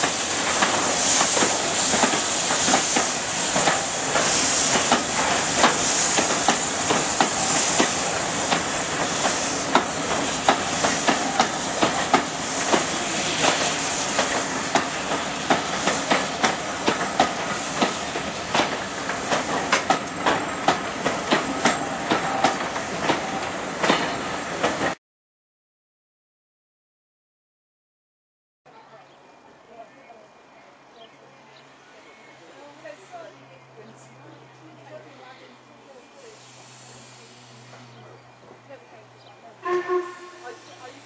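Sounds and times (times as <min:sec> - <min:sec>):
steam hiss: 0:00.0 - 0:25.0, 0:36.1 - 0:38.0
train wheels clicking over rail joints: 0:00.0 - 0:25.0.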